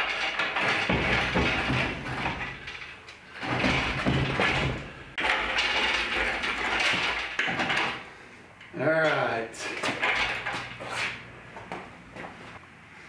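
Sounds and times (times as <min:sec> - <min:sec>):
metal rattling and clanking: 0:00.0 - 0:08.1, 0:08.9 - 0:11.2
hoist casters rolling on concrete: 0:00.0 - 0:11.3.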